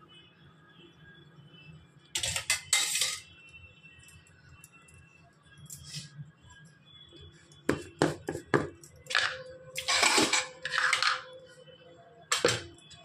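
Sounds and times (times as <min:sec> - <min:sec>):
metal utensils clinking on pot: 0:02.2 - 0:03.3, 0:09.1 - 0:11.3.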